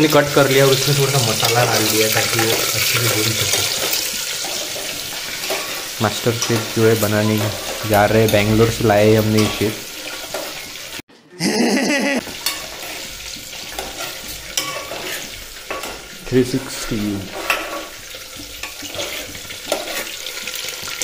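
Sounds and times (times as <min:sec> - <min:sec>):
potatoes sizzling in hot oil: 0:00.0 - 0:11.0, 0:12.2 - 0:21.0
metal spoon clinking against pot: 0:01.8 - 0:10.6, 0:12.3 - 0:16.2.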